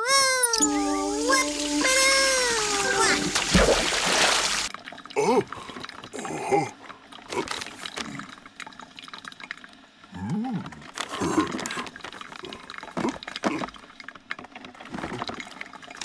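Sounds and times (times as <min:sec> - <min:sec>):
bubbly cartoon sound effects: 0:00.0 - 0:04.7.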